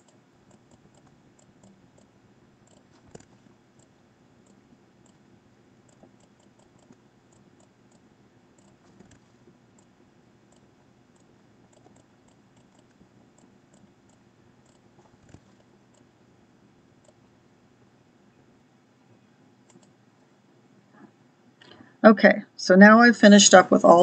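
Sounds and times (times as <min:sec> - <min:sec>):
computer mouse clicks: 0:00.0 - 0:05.2, 0:05.9 - 0:08.0, 0:08.6 - 0:09.9, 0:10.5 - 0:16.1, 0:17.0 - 0:17.2, 0:19.6 - 0:20.0.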